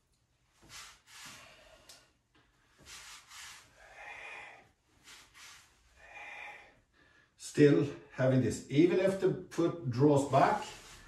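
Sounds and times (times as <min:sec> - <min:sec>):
man breathing softly: 0:00.6 - 0:07.4.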